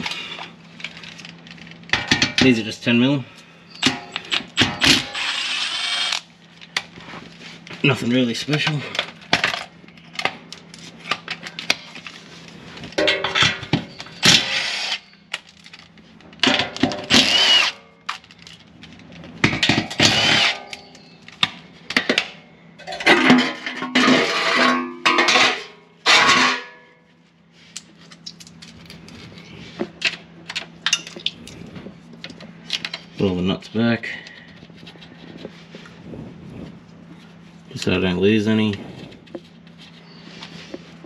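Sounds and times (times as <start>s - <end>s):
power tool whining: 3.8s - 6.3s, 13.9s - 15.2s, 17.0s - 17.8s, 19.8s - 21.1s.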